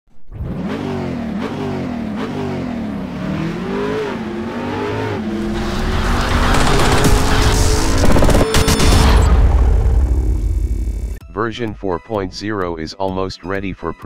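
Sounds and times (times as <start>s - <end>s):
car engine revving: 0.3s - 11.2s.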